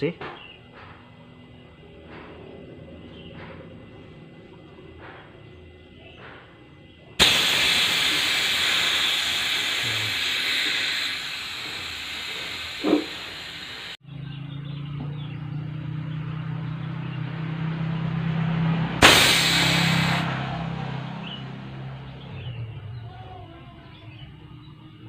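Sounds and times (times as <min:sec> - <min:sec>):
compressor humming: 0:00.1 - 0:14.0, 0:19.0 - 0:25.0
gas hissing from pipe: 0:07.1 - 0:14.0, 0:19.0 - 0:21.4.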